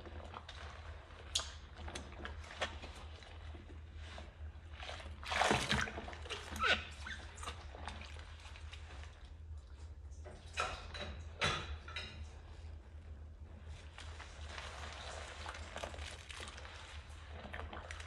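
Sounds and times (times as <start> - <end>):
sponge scrubbing a mug: 0.0 - 9.4, 12.7 - 18.0
water sloshing in sink: 0.0 - 18.0
water pouring into sink: 14.4 - 18.0.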